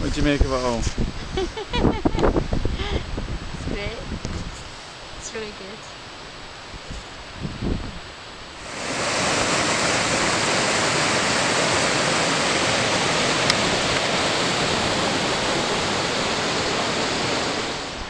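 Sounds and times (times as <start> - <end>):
river rapids rushing: 8.5 - 18.0.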